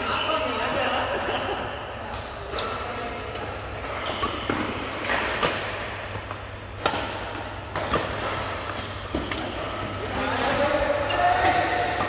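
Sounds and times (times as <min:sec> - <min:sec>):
badminton racket hitting shuttlecock: 0:02.2 - 0:12.0.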